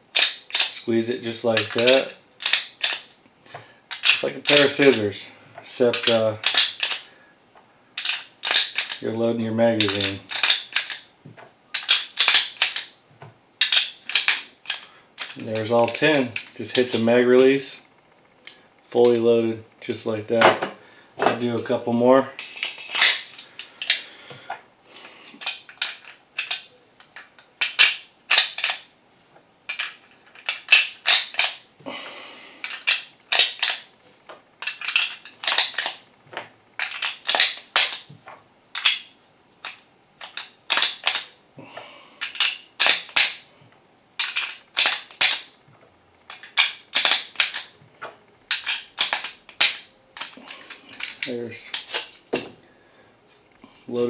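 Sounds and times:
magazine loader clicks and snaps: 0.1s - 0.8s, 1.6s - 3.0s, 3.9s - 5.0s, 5.9s - 7.1s, 8.0s - 9.0s, 9.8s - 11.0s, 11.8s - 12.9s, 13.6s - 17.0s, 25.4s - 28.8s, 29.7s - 31.6s, 32.6s - 33.8s, 34.6s - 36.0s, 36.8s - 38.0s, 39.6s - 41.3s, 42.2s - 43.4s, 44.2s - 45.5s, 46.3s - 47.7s, 48.5s - 52.5s.

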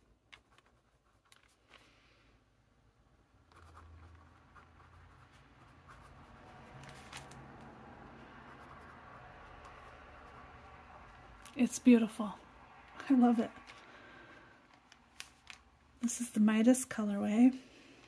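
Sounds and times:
pen nib scratching paper: 3.5s - 7.4s, 8.2s - 11.5s.

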